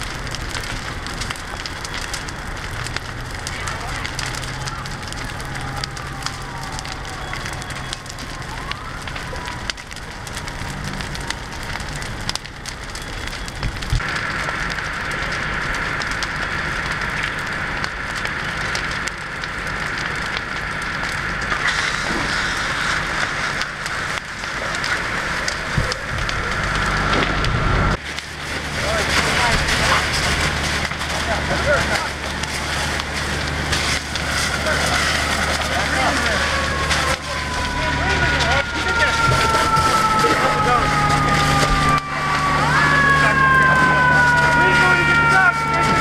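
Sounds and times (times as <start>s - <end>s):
wood fire crackling and popping: 0.0s - 46.0s
low hum: 9.1s - 44.6s.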